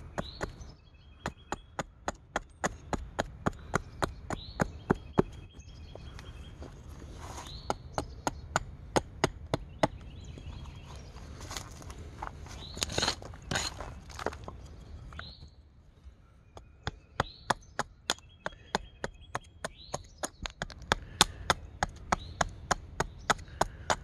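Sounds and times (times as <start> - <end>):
hatchet chopping wood: 1.2 - 5.4, 7.6 - 10.2, 16.6 - 24.0.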